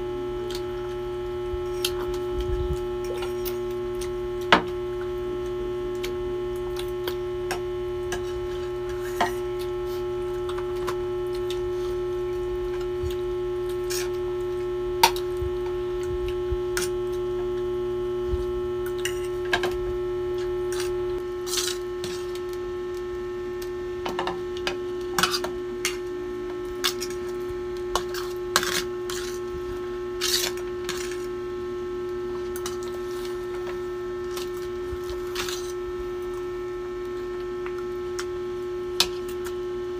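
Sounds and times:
steady hum: 0.0 - 39.9.

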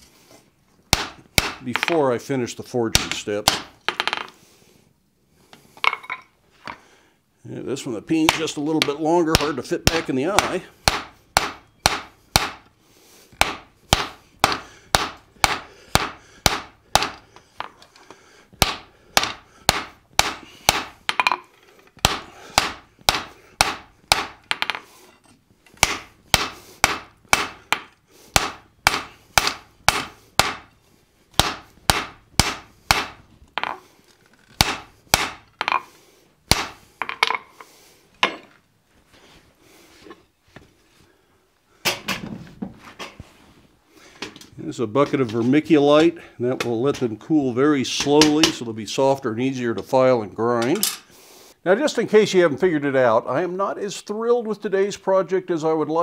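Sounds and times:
hammer striking hot metal on anvil: 25.8 - 30.7, 31.4 - 33.2.

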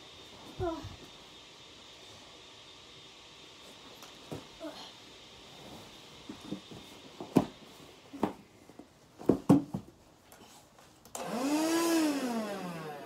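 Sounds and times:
thumps and knocks of scuffling: 4.2 - 4.6, 5.6 - 11.0.

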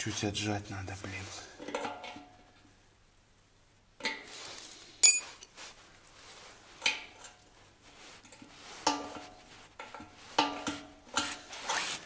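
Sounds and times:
small metal parts clinking: 5.0 - 5.3.

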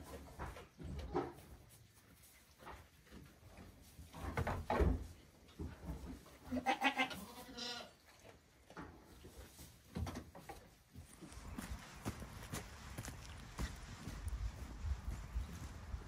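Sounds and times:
hooves thumping on wooden pen: 0.0 - 6.4
goat kids bleating: 6.5 - 8.0.

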